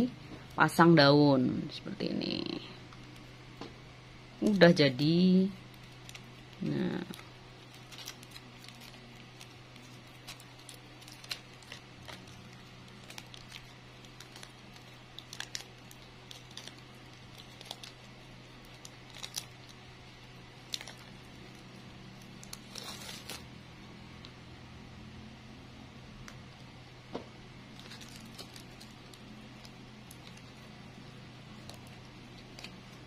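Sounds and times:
low hum: 0:00.0 - 0:33.0
plastic strip crinkling: 0:04.4 - 0:23.5, 0:27.7 - 0:33.0.

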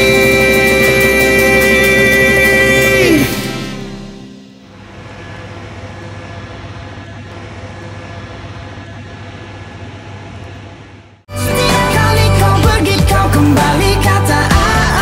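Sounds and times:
loud pop music: 0:00.0 - 0:04.4, 0:11.3 - 0:15.0.

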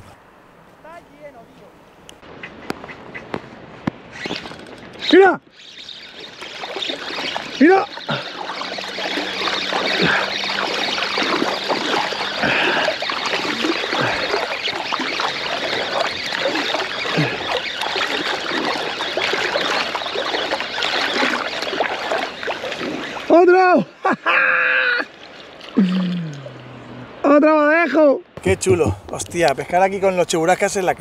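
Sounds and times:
water lapping and splashing: 0:02.2 - 0:27.2
spinning reel winding: 0:04.2 - 0:05.7.

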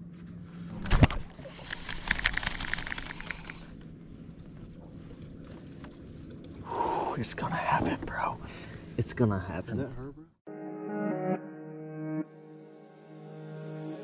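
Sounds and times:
rapid clicking: 0:01.6 - 0:03.7.

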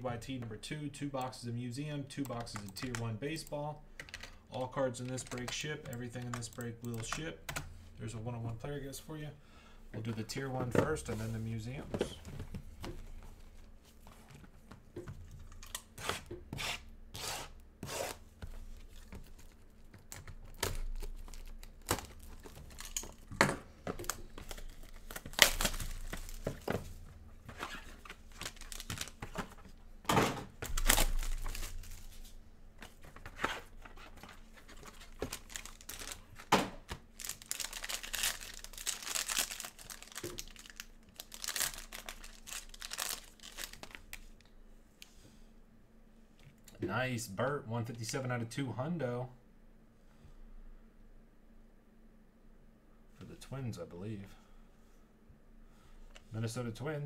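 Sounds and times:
foil pack crinkling: 0:18.6 - 0:26.8, 0:27.4 - 0:29.7, 0:30.6 - 0:32.3, 0:33.0 - 0:44.4
packaging tearing: 0:24.1 - 0:26.5, 0:27.6 - 0:29.3, 0:34.6 - 0:44.2.

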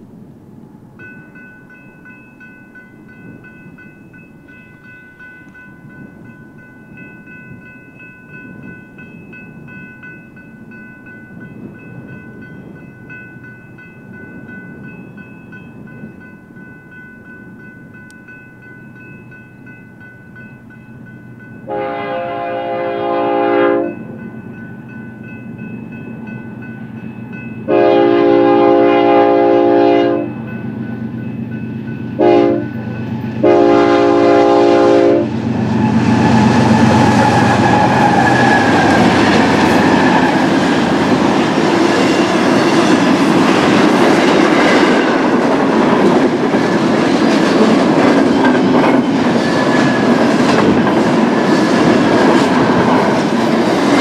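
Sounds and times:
diesel freight train rumble: 0:00.0 - 0:54.0
crossing warning bell ringing: 0:00.8 - 0:54.0
locomotive horn blasts: 0:21.7 - 0:24.1, 0:27.7 - 0:30.4, 0:32.2 - 0:32.8, 0:33.4 - 0:38.1.

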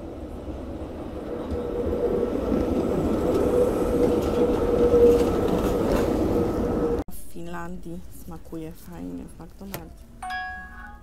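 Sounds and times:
tram wheels rumbling on rails: 0:00.0 - 0:07.0
tram whine: 0:00.0 - 0:07.0.

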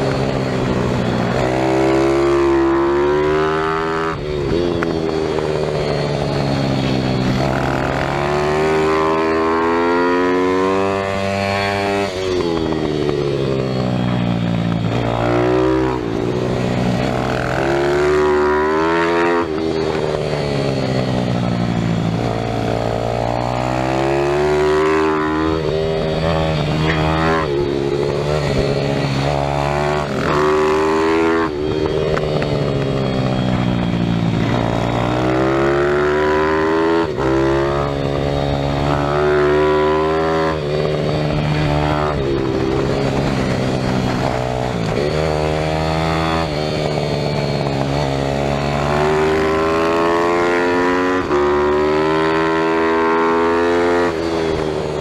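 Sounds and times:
small motorcycle engine revving: 0:00.0 - 0:55.0.

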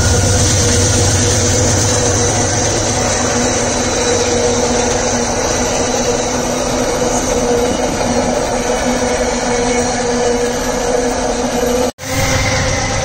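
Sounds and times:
diesel locomotive engine drone: 0:00.0 - 0:13.0
train wagons rumbling on rails: 0:00.0 - 0:13.0.

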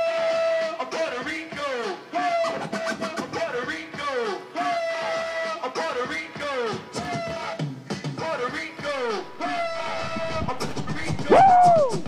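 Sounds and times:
looping music with sliding tones: 0:08.8 - 0:12.0.

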